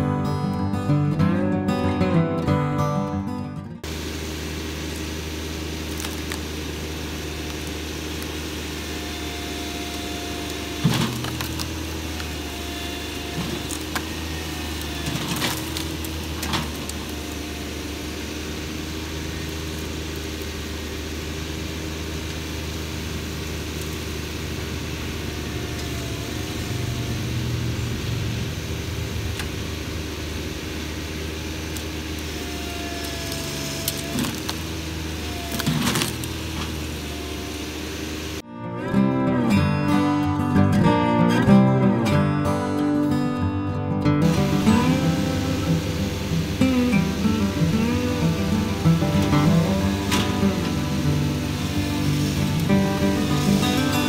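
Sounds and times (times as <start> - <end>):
tractor diesel engine running: 0.0 - 54.0
sharp cracks of wood: 10.5 - 12.4, 14.7 - 17.3, 33.0 - 34.7, 35.4 - 36.8.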